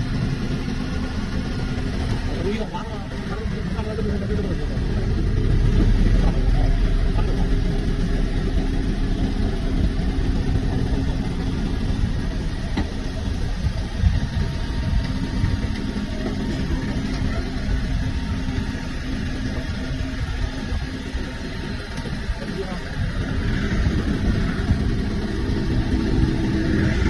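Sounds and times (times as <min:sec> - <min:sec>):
diesel engine running under load: 0:00.0 - 0:27.0.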